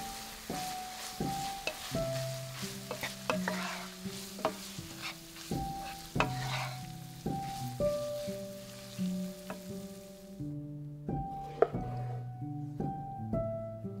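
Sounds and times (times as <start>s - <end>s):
ground beef sizzling: 0.0s - 10.5s
background music of held notes: 0.0s - 14.0s
spatula clacking against pan: 0.2s - 10.0s.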